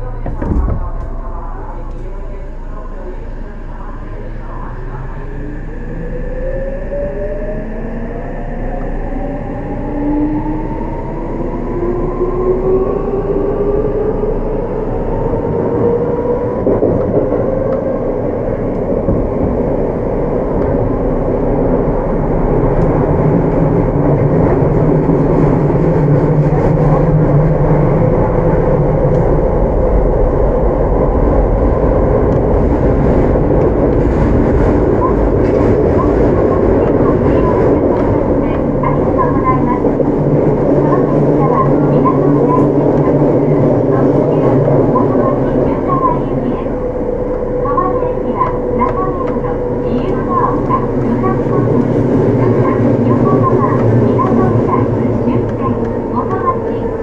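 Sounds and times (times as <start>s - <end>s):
train wheels on rail: 15.4s - 29.5s, 31.7s - 57.0s.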